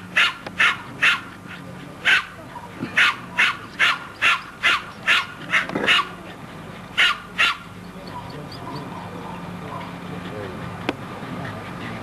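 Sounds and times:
dog yapping: 0:00.2 - 0:01.3, 0:02.0 - 0:06.4, 0:07.0 - 0:09.9.

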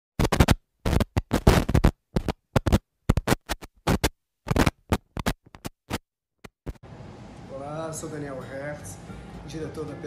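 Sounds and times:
choppy scratchy noise and music: 0:00.2 - 0:06.8.

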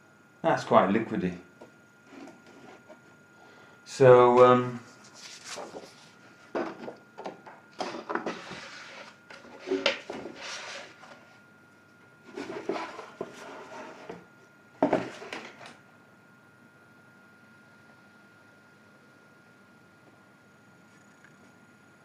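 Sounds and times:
brush rubbing over card: 0:04.8 - 0:06.2, 0:08.2 - 0:11.3
card rustling: 0:04.8 - 0:07.0.

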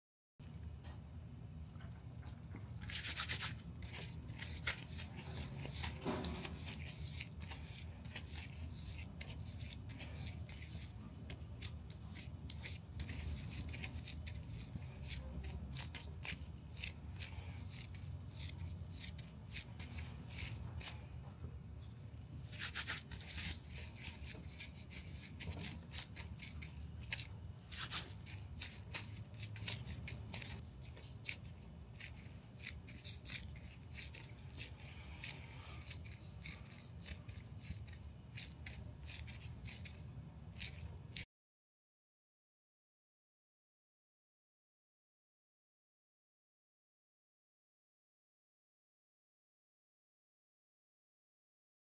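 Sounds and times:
gloved hands rubbing tape: 0:02.8 - 0:21.2, 0:22.4 - 0:41.3.

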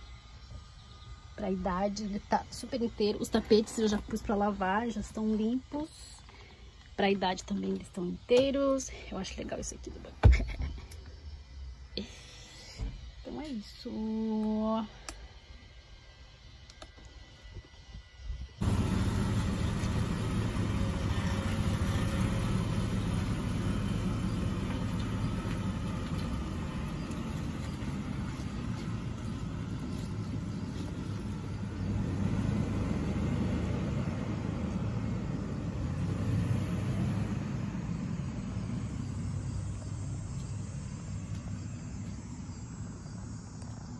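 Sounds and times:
van engine driving off: 0:18.6 - 0:43.9.

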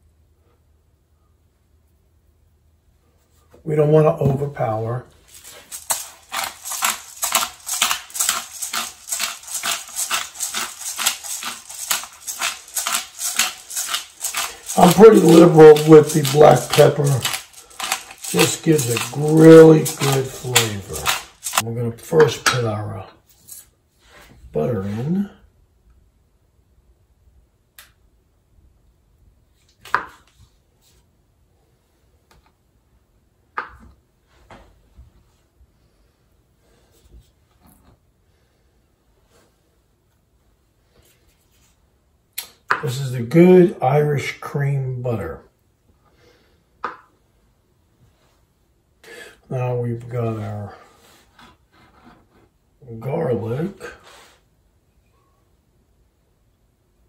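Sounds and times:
pepper mill grinding: 0:05.1 - 0:22.6
knife slicing butter: 0:05.9 - 0:21.6.

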